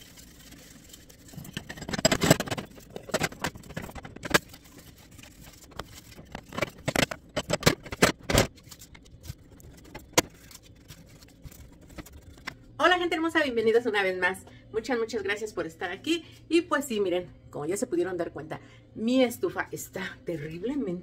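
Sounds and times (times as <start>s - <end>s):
metal burner parts clattering: 0.3s - 12.5s.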